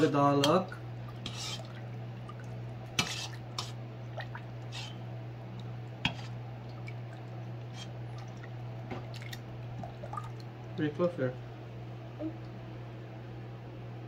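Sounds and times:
ladle stirring thick liquid: 0.0s - 10.8s
steady low hum: 0.0s - 14.0s.

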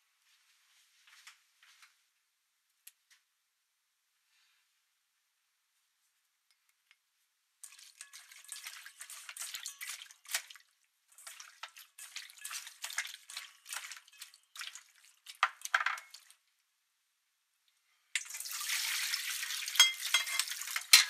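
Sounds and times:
wet slapping and clicking in bowl: 7.6s - 16.4s.

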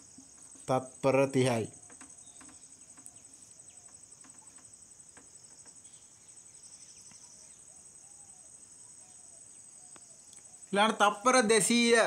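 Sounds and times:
high-pitched insect trill: 0.0s - 12.0s
marker tapping and squeaking on whiteboard: 1.8s - 3.1s.

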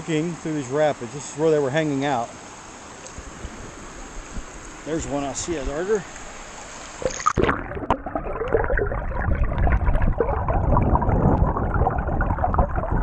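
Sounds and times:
muffled underwater rushing current: 3.2s - 13.0s.

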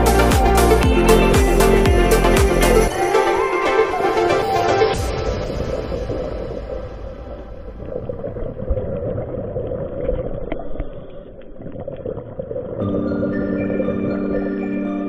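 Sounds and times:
underwater rumble and wash: 5.0s - 14.6s.

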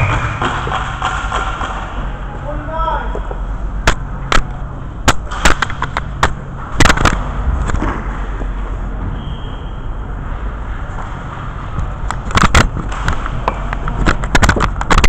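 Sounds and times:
sharp clacks and knocks: 0.0s - 2.2s, 3.2s - 8.0s, 11.8s - 15.0s
low hum: 0.0s - 15.0s.

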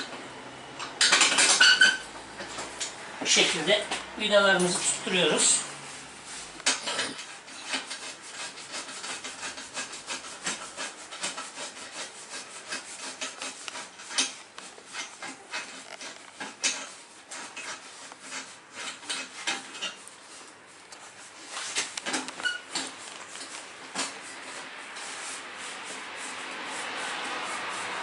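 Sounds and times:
small metal clicks and scrapes: 6.6s - 20.2s.

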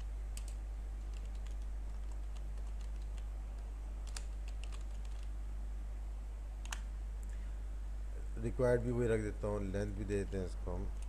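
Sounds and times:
steady low hum: 0.0s - 11.0s
keyboard typing: 0.4s - 5.3s.

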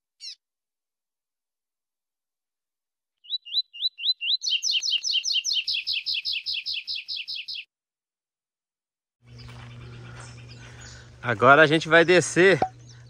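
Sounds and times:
bird singing whistled notes: 3.2s - 7.7s.

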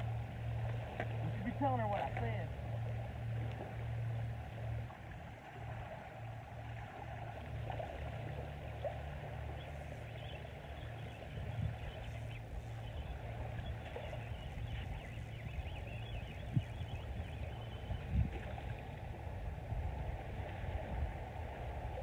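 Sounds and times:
small waves washing on beach: 0.0s - 22.0s
wind rumbling on microphone: 0.0s - 22.0s.

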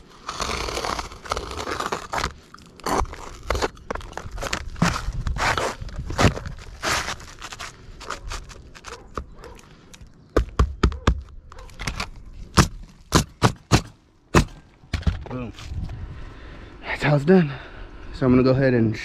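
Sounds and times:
nail gun shots into shingles: 12.6s - 14.6s.

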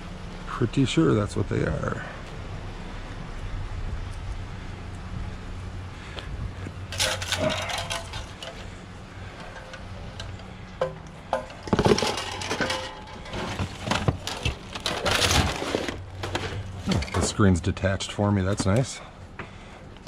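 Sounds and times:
printer parts clattering: 6.9s - 8.7s, 9.3s - 17.5s
rummaging through rubbish: 6.9s - 17.6s.

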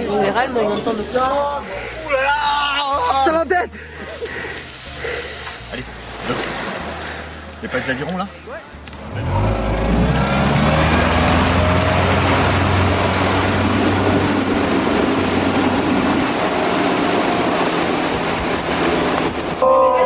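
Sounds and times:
rush of wind and water: 1.0s - 20.0s
motorboat engine: 3.8s - 20.0s.

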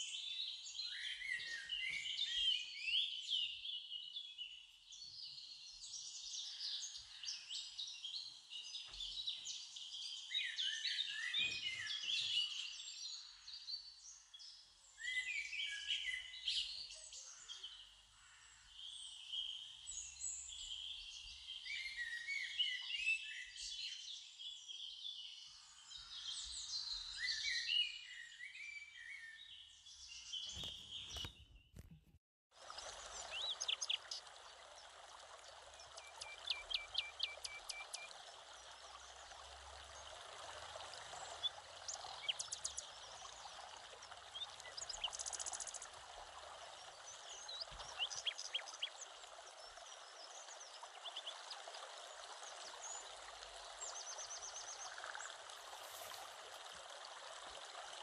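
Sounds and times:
birds chirping: 0.0s - 24.0s, 25.3s - 32.0s, 32.6s - 56.3s
running water: 5.6s - 23.0s, 29.9s - 58.0s.

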